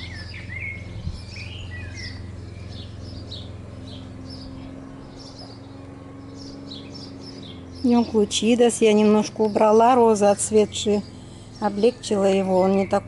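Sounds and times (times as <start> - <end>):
small songbirds chirping: 0.0 - 13.0
steady low hum: 0.0 - 13.0.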